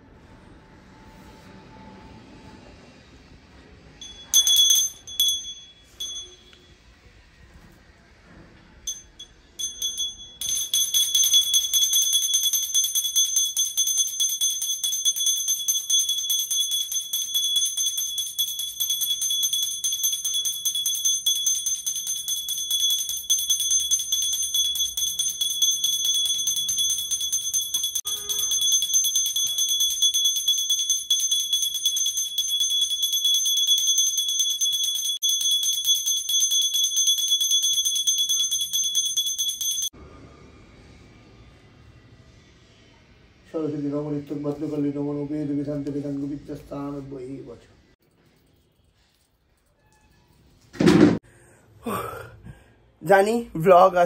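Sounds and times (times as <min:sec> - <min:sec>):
brass hand bell ringing: 0:04.0 - 0:06.8, 0:08.9 - 0:40.0.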